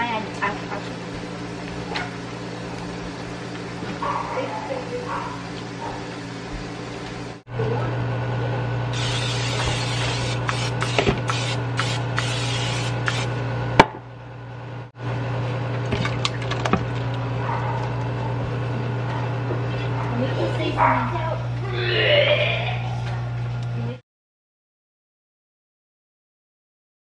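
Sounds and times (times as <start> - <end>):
cooking spray hissing: 8.9 - 13.3.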